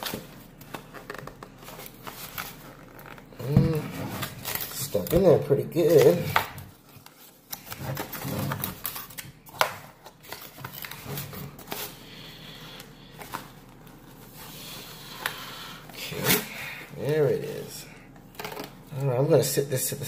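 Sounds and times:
cardboard scraping and rustling: 7.0s - 9.2s.

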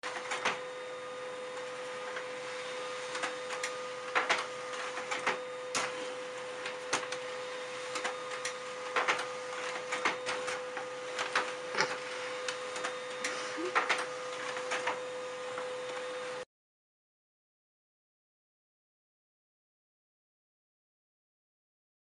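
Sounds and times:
printer clicks and clacks: 0.0s - 0.6s, 3.0s - 15.0s
laser printer whining: 0.0s - 16.5s.

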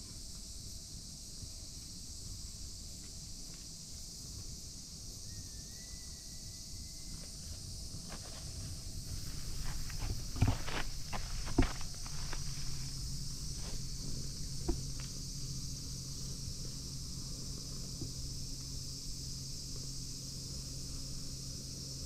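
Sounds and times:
insects chirring: 0.0s - 22.0s
rustle of handling: 7.3s - 15.2s
knocks: 14.6s - 15.1s.

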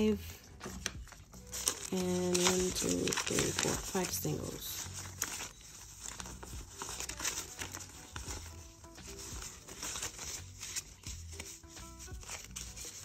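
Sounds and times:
paper bills rustling: 0.0s - 13.0s
soft background music: 0.0s - 13.0s.

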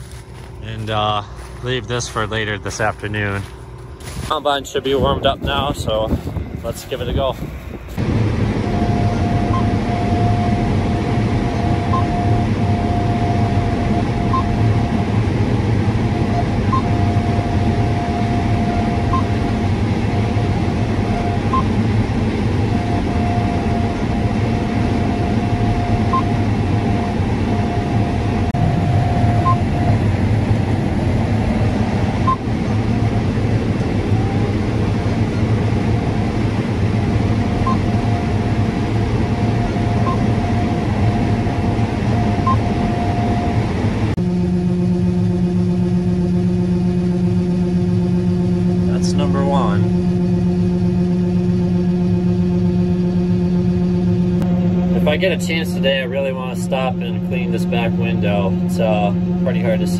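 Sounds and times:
combine harvester low drone: 0.0s - 59.9s
high machine whine: 0.0s - 59.9s
short faint beeps: 28.9s - 30.0s.

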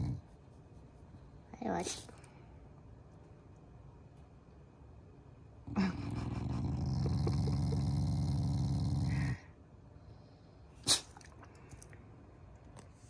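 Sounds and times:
dog growling: 0.0s - 0.2s, 5.6s - 9.5s.

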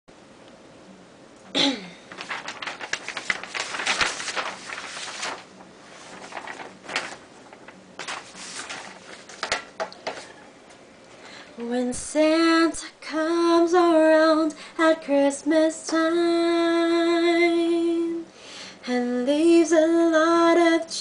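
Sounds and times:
paper rustling and crackling: 2.0s - 10.5s.

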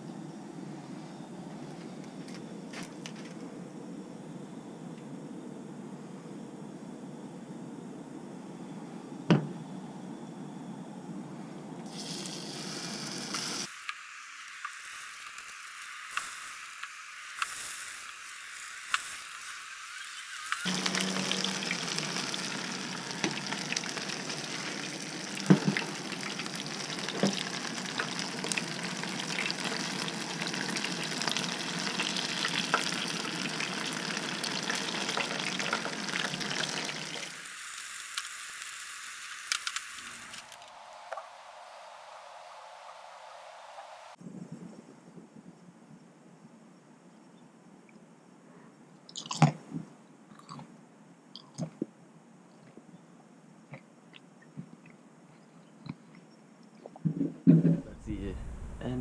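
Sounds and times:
fish sizzling in hot oil: 11.9s - 40.6s.

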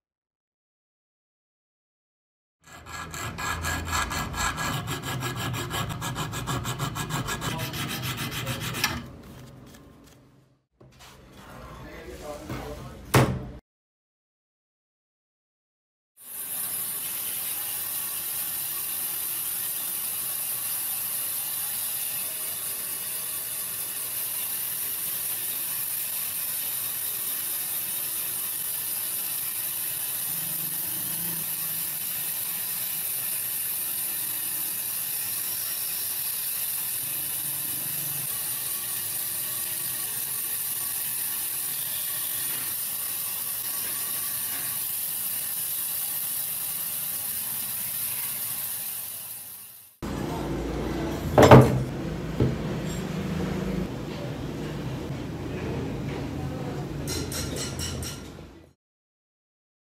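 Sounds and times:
band saw cutting wood: 2.6s - 9.2s.

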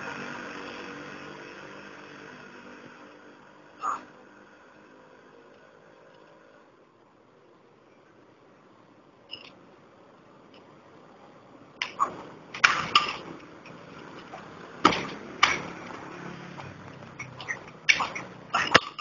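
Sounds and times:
martial arts strikes and blocks: 11.8s - 13.1s.

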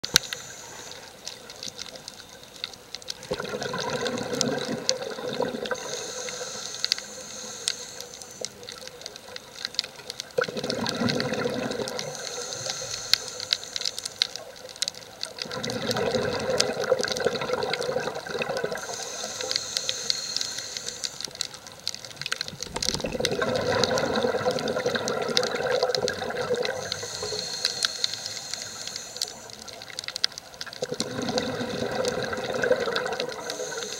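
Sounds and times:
regulator inhale hiss: 0.0s - 3.1s, 4.3s - 23.0s, 23.7s - 30.3s, 31.0s - 33.9s
small clicks: 0.0s - 33.9s
bubbling exhales underwater: 3.2s - 6.0s, 10.4s - 12.2s, 15.4s - 19.1s, 22.5s - 27.5s, 30.8s - 33.9s.

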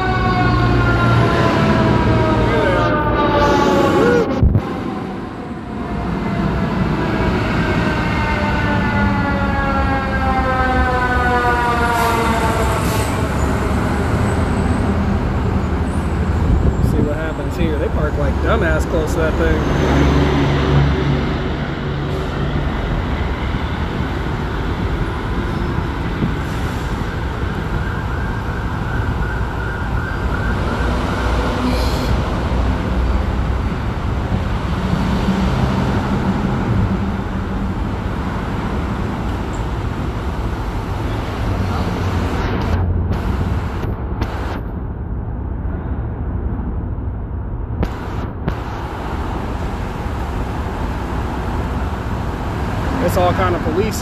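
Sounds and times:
emergency siren warbling: 0.0s - 33.8s
highway traffic rumble: 0.0s - 54.0s.

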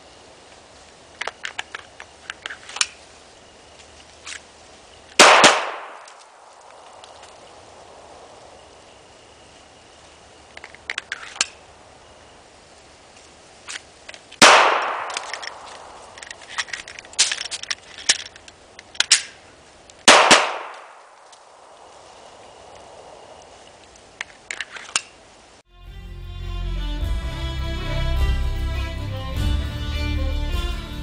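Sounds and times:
handgun shots echoing: 5.2s - 6.3s, 14.4s - 15.9s, 20.1s - 21.2s
light clicks and rattles: 15.1s - 20.0s.

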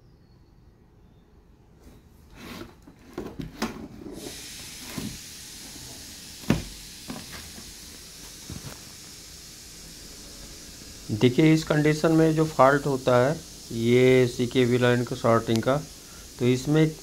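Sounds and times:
steady hiss: 4.0s - 17.0s.

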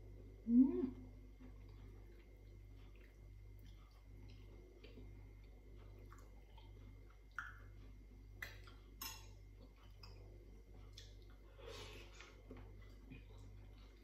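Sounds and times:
cutlery clinking on ceramic dishes: 9.0s - 9.4s.

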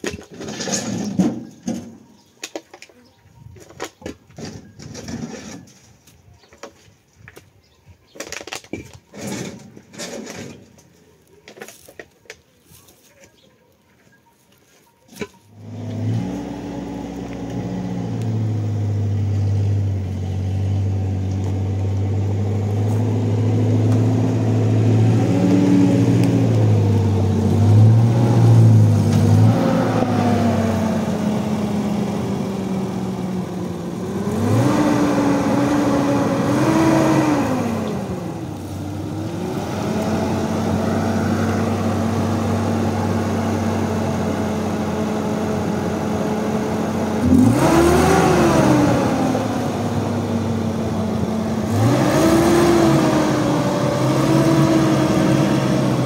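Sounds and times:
pickup truck engine revving: 15.6s - 56.0s.

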